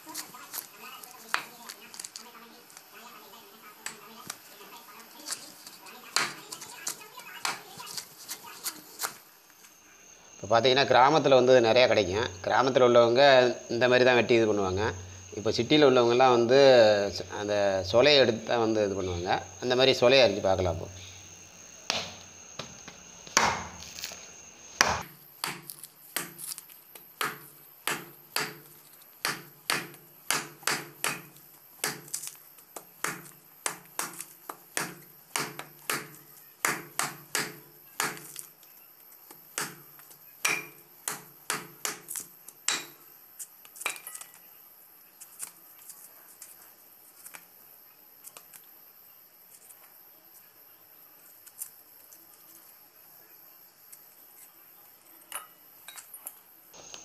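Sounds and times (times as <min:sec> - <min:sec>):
knife chopping fruit on wood: 0:06.2 - 0:08.0, 0:21.9 - 0:23.8, 0:24.8 - 0:38.5, 0:39.3 - 0:43.0.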